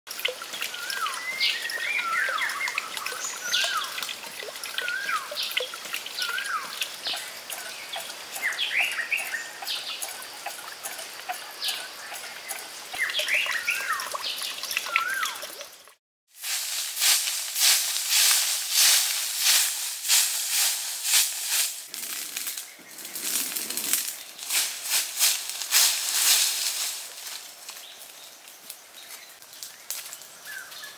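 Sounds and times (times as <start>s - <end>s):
water trickling: 0.1s - 30.8s
broom sweeping leafy ground: 16.3s - 28.3s.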